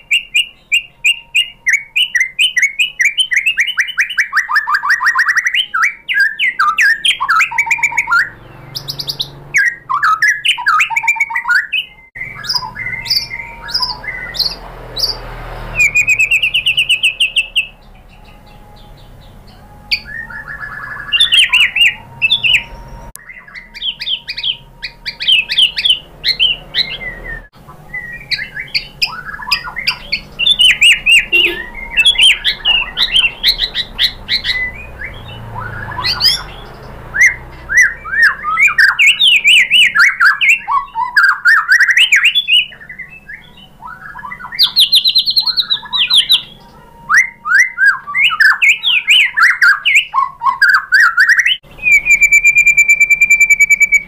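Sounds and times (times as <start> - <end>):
songbird singing: 0.0 - 54.0.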